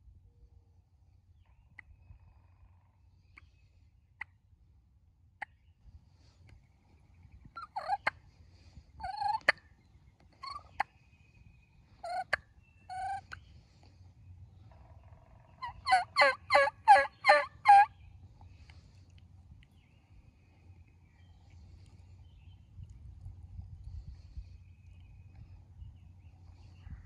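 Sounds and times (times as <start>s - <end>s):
turkey calling: 7.5s - 8.2s, 9.0s - 9.6s, 10.2s - 11.0s, 12.0s - 13.5s, 14.7s - 18.0s.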